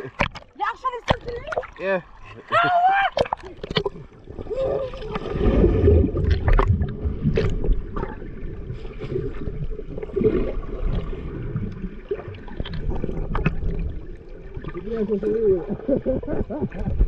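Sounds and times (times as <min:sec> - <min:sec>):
sharp clicks underwater: 0:00.0 - 0:01.8, 0:03.1 - 0:04.1, 0:06.2 - 0:08.2, 0:11.6 - 0:13.9
muffled underwater rumbling and bubbling: 0:00.0 - 0:17.0.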